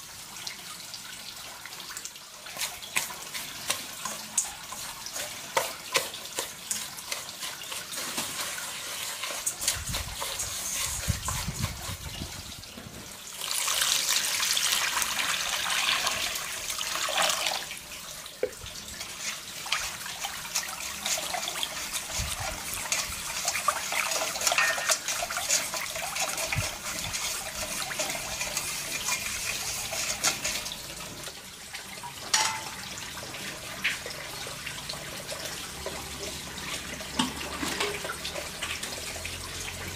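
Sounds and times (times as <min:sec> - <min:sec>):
water running and splashing: 0:00.0 - 0:39.9.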